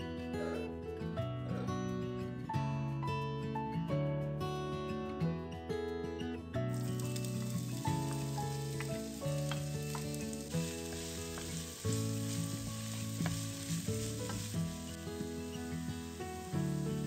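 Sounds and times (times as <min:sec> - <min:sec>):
vegetables sizzling in oil: 0:06.7 - 0:17.0.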